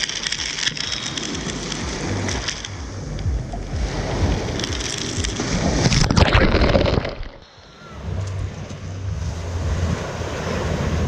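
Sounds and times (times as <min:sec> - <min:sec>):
steady surf: 0:00.0 - 0:11.0
waves splashing and foam fizzing: 0:00.0 - 0:11.0
wind rumbling on microphone: 0:00.0 - 0:11.0.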